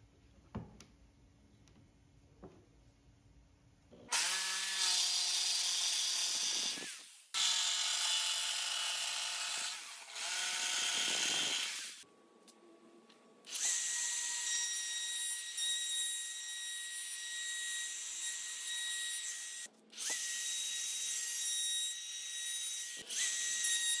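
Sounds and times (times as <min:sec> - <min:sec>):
jigsaw cutting wood: 0:04.1 - 0:12.0.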